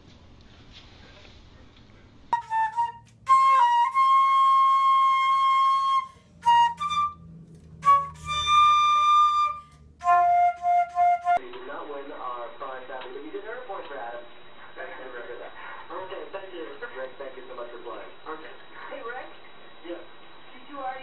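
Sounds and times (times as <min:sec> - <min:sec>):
flute playing slow melody: 0:02.4 - 0:11.4.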